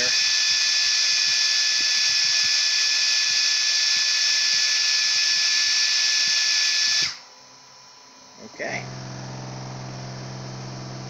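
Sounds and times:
fan hissing and whining: 0.0 - 11.0.

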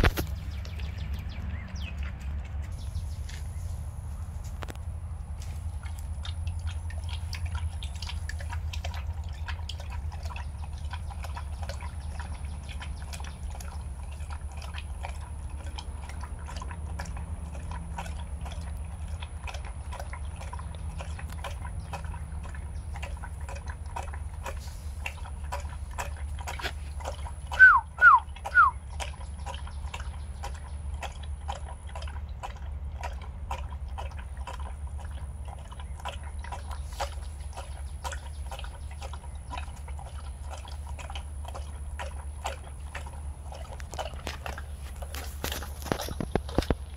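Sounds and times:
low hum: 0.0 - 46.9
dog lapping from a steel bowl: 4.8 - 46.9.

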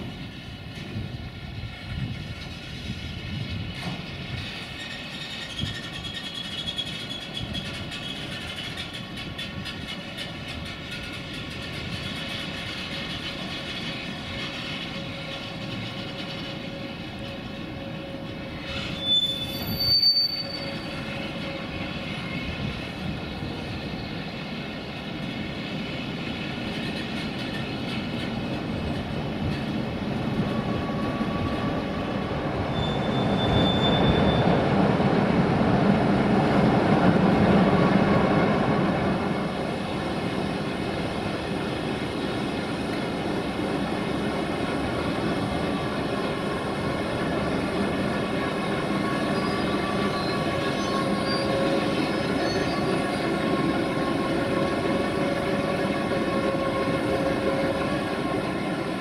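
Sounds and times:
train wheels rumbling on rails: 0.0 - 59.0
high thin wheel squeals: 4.6 - 11.2, 18.5 - 21.6, 32.7 - 34.6, 49.0 - 54.8.

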